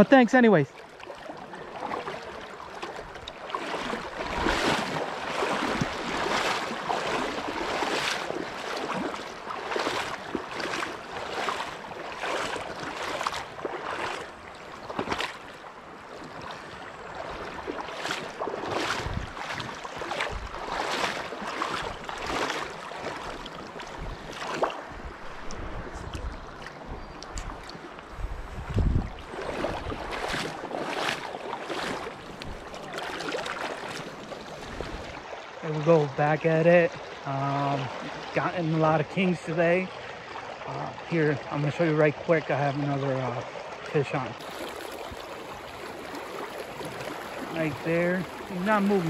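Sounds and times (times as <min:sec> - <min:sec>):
river water splashing: 0:00.0 - 0:49.0
wind buffeting microphone: 0:17.2 - 0:22.6, 0:23.3 - 0:31.1.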